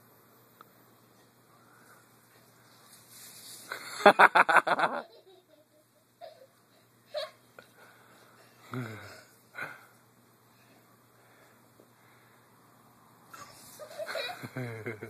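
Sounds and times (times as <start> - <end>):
person laughing: 13.8 - 15.0.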